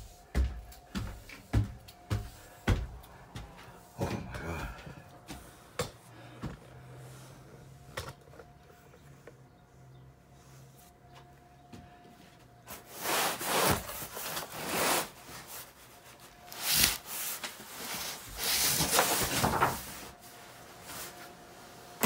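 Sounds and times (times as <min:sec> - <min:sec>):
cardboard scraping and rubbing: 0:12.7 - 0:15.8.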